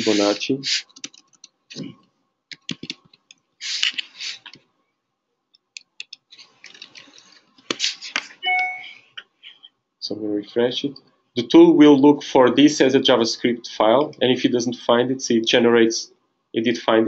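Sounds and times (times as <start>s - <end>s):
hissy rustling noises: 0.0s - 1.9s, 2.8s - 4.6s, 6.2s - 8.4s
laptop keyboard typing: 0.8s - 1.6s, 2.5s - 4.6s.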